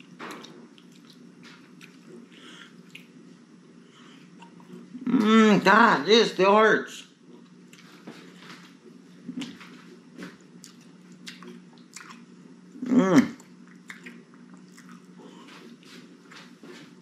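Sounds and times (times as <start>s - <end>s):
man chewing: 0.0s - 3.2s, 7.3s - 8.4s, 9.2s - 16.9s.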